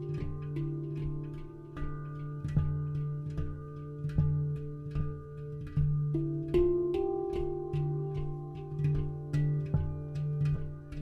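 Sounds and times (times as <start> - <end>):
plucked notes: 0.0 - 11.0.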